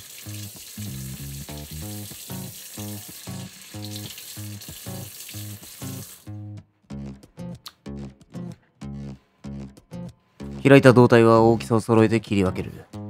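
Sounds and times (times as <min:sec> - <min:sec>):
tap running into sink: 0:00.0 - 0:06.2
plucked background music: 0:00.0 - 0:13.0.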